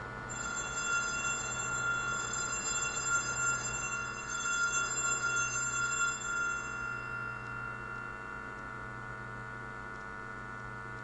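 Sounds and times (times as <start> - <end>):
low mains hum: 0.0 - 11.0
altar bells ringing: 0.3 - 9.0.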